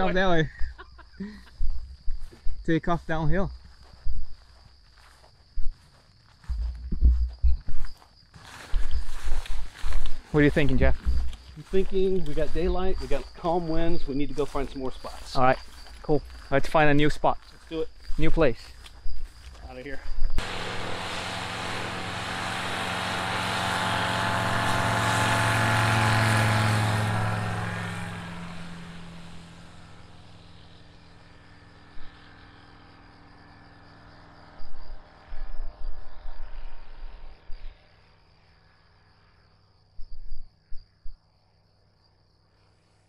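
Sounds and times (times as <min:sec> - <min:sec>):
plane engine and propeller: 0:20.4 - 0:39.1.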